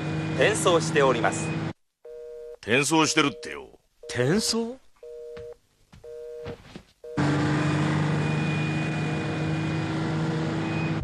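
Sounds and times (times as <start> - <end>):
truck engine and road noise: 0.0 - 1.8, 7.0 - 11.0
telephone line beeps: 2.1 - 8.8.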